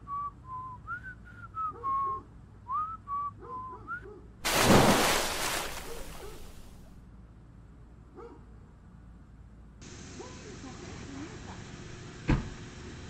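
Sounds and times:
person splashing into pool: 0:04.4 - 0:06.9.

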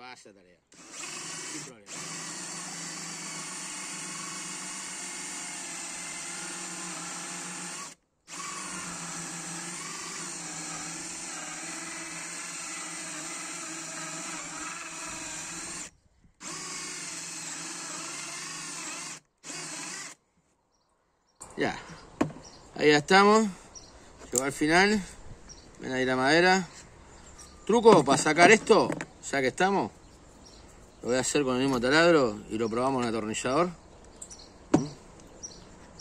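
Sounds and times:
drill boring into wood: 0:00.7 - 0:20.2.

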